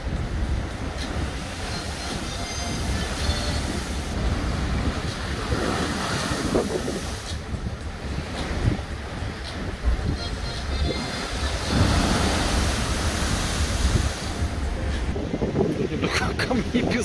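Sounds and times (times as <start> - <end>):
wind buffeting microphone: 0.0 - 17.0
surf crashing against wall: 10.8 - 15.2.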